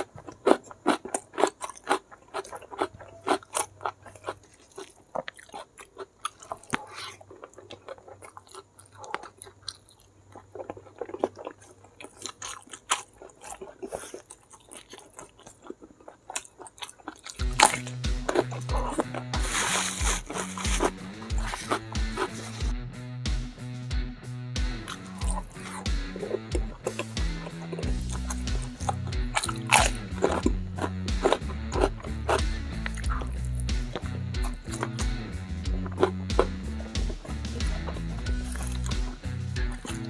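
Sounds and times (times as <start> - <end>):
chewing and crunching food: 0.0 - 22.7, 24.8 - 40.0
background music with steady beat: 17.3 - 40.0.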